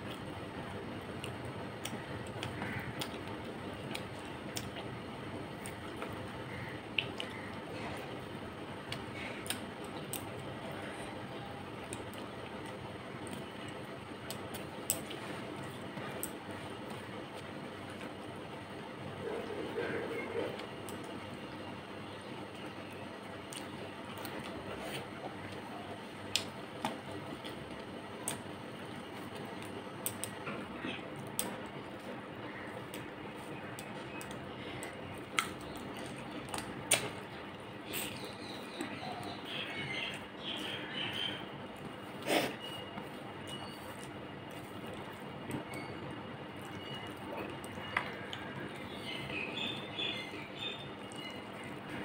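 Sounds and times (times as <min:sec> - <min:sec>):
chewing: 0:29.2 - 0:46.0.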